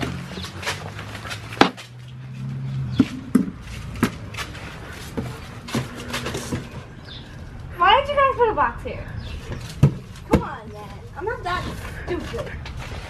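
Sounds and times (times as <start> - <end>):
plastic chairs and boxes knocking: 0.0 - 1.9, 2.9 - 4.5, 5.1 - 6.8, 9.5 - 10.8.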